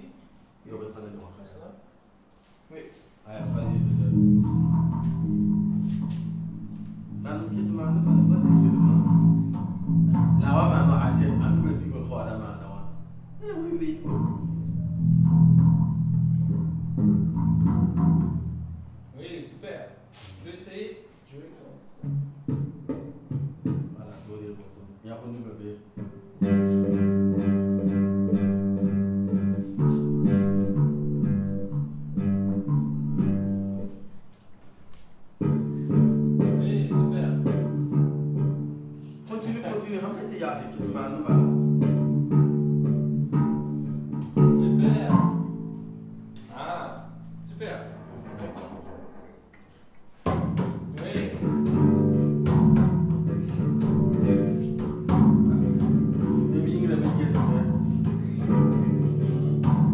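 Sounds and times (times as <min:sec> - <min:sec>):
electric bass guitar plucked: 0:03.4 - 0:19.0, 0:26.0 - 0:34.1, 0:35.4 - 0:39.2, 0:40.7 - 0:47.6, 0:50.3 - 0:59.9.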